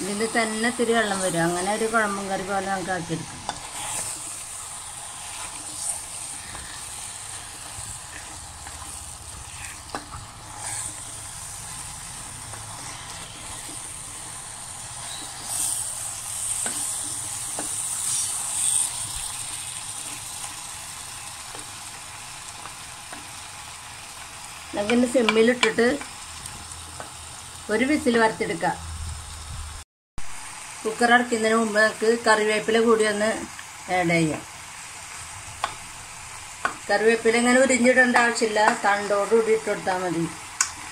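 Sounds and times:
chicken sizzling in a pot: 0.0 - 40.9
spatula scraping a pot: 3.4 - 11.6, 14.8 - 19.3.

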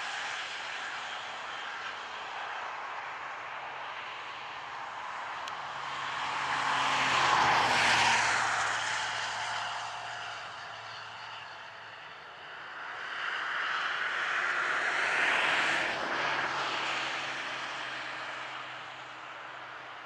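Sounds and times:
vehicle passing by: 5.4 - 19.2.

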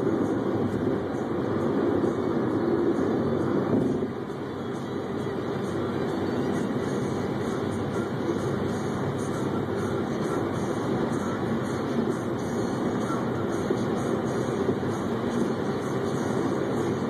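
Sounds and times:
car road and engine noise: 0.0 - 17.0.

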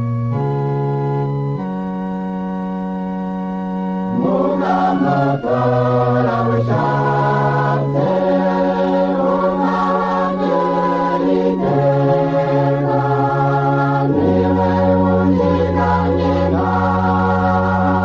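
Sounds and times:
organ chord: 0.0 - 18.0
choir singing a slow chant: 4.1 - 18.0.

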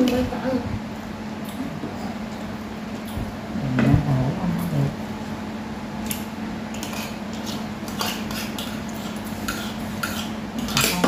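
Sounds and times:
utensils clinking on ceramic plates: 6.7 - 11.0.

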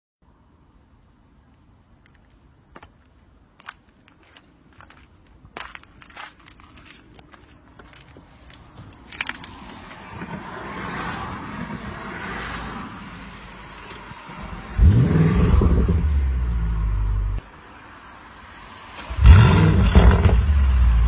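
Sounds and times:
car engine starting and idling: 9.1 - 17.4, 18.9 - 21.0.

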